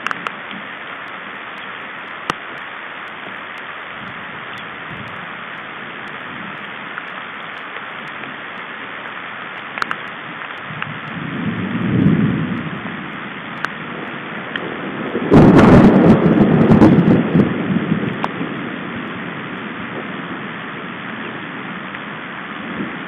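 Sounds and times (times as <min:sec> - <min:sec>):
rain on forest canopy: 0:00.0 - 0:23.0
low rumble of thunder: 0:04.0 - 0:07.0, 0:10.7 - 0:23.0.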